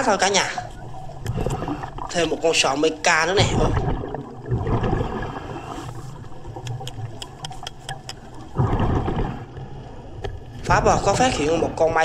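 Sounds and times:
low rumble and bubbles: 0:00.0 - 0:12.0
underwater diver breathing: 0:01.2 - 0:02.1, 0:04.9 - 0:09.5
rush of exhaled bubbles: 0:01.2 - 0:02.6, 0:03.3 - 0:11.4
sharp clicks: 0:06.6 - 0:08.4.

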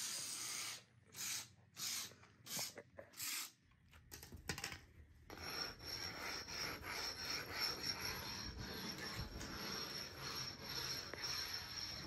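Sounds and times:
sanding block rubbing plaster: 0:05.3 - 0:12.0.

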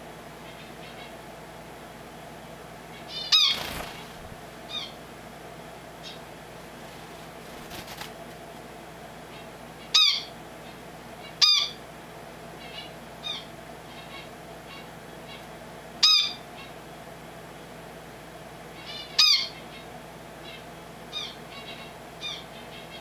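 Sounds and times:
faint steady hum: 0:00.0 - 0:23.0
finch calling: 0:03.1 - 0:05.0.

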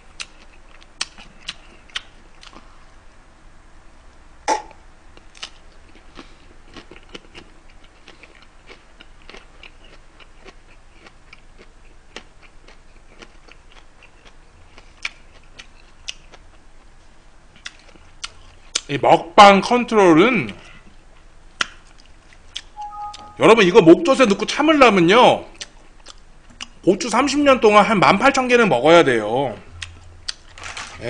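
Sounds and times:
wet mouth clicks: 0:04.5 - 0:04.8
chili pepper crunching: 0:05.2 - 0:16.4, 0:29.8 - 0:31.0.

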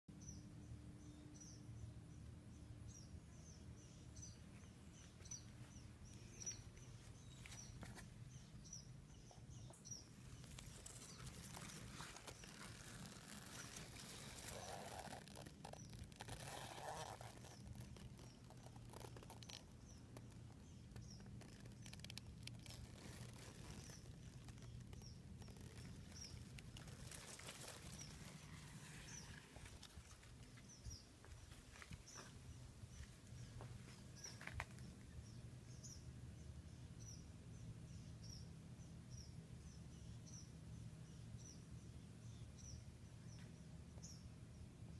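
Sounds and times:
low steady hum: 0:00.1 - 0:44.9
leaves rustling and handling noise: 0:05.0 - 0:08.6, 0:10.1 - 0:32.4.

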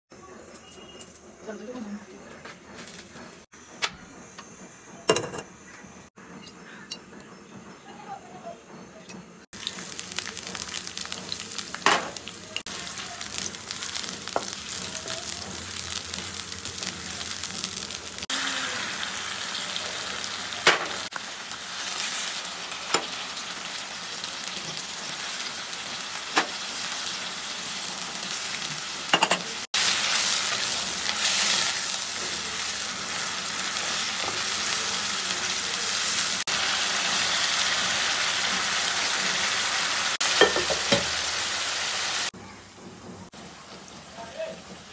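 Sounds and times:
oil sizzling in a pan: 0:09.6 - 0:42.4.

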